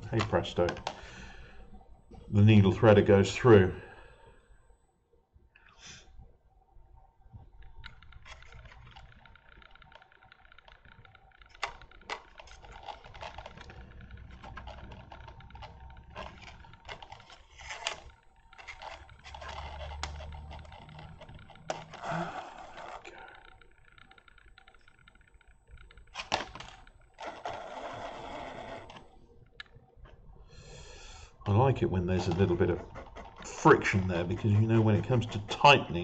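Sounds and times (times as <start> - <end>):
hands rustling: 31.3 - 36.0.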